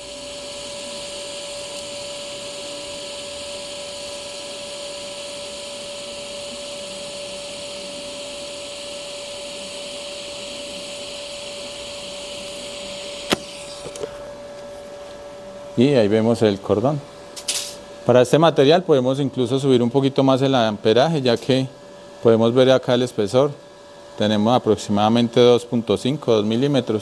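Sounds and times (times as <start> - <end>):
welding arc hissing: 0.0 - 14.3, 17.3 - 18.2
sharp click: 13.2 - 14.1.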